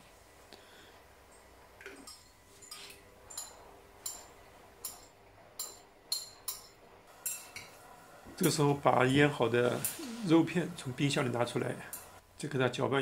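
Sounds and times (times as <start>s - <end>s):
utensil clinking ceramic bowl: 1.9s - 7.8s.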